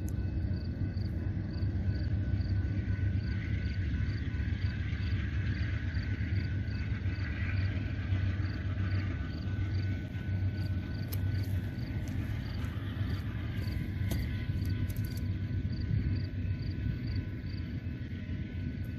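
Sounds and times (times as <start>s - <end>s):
low rumble: 0.0s - 18.9s
insect chirping: 0.2s - 18.7s.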